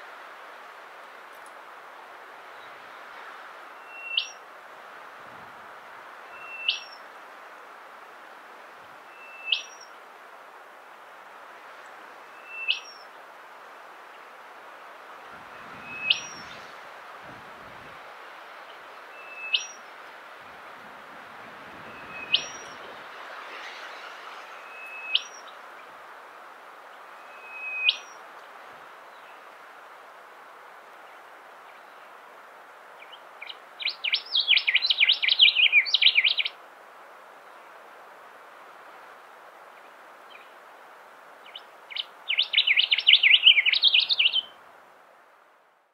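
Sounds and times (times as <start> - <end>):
bird whistling upward notes: 3.8 - 4.4, 6.4 - 7.0, 12.4 - 13.0, 15.8 - 16.6, 19.2 - 19.8, 21.9 - 22.8, 24.6 - 25.5, 27.3 - 28.2, 33.8 - 36.5, 41.9 - 44.5.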